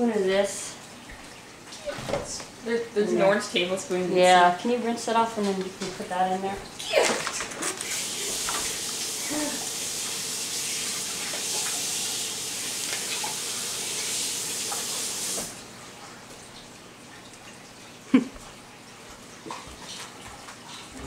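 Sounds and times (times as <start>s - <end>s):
tap water running: 0.0s - 21.0s.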